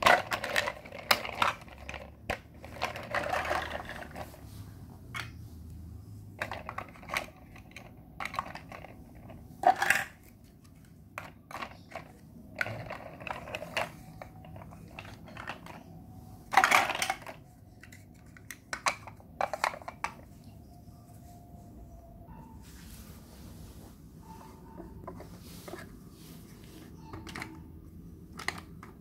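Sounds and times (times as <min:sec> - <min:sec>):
plastic blocks clicking and clattering: 0:00.0 - 0:04.4, 0:06.4 - 0:20.3, 0:28.2 - 0:29.0.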